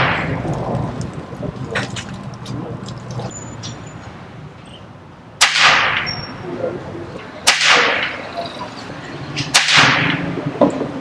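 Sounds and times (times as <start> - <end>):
air rifle shots: 0.0 - 0.4, 5.4 - 6.2, 7.4 - 8.3, 9.4 - 10.4.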